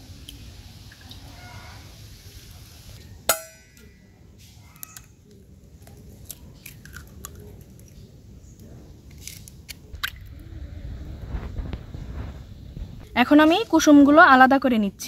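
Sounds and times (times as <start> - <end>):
bowl ringing: 3.3 - 4.1.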